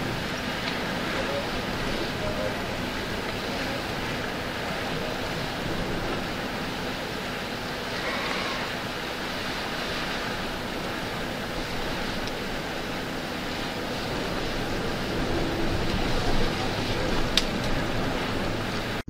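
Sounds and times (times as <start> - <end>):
river flowing over rocks: 0.0 - 19.0.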